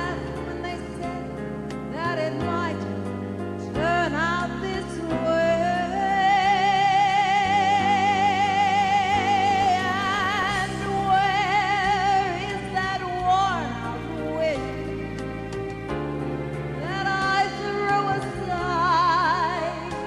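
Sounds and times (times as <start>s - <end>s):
woman singing ballad: 0.0s - 15.4s, 16.6s - 20.0s
sustained accompaniment chords: 0.0s - 20.0s.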